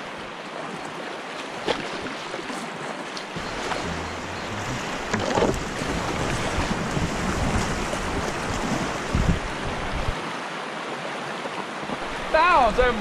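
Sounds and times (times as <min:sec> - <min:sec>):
rushing river water: 0:00.0 - 0:13.0
short thumps: 0:03.4 - 0:06.8
wind rumbling on microphone: 0:03.4 - 0:10.2.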